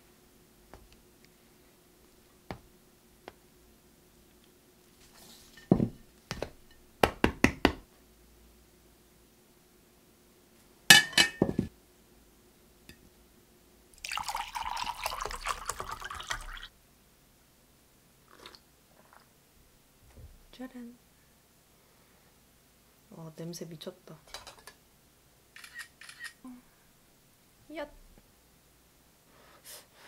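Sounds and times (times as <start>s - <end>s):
plates set down on table: 5.5s - 6.8s, 10.9s - 11.7s, 24.3s - 24.8s
water poured into glass: 14.0s - 16.7s.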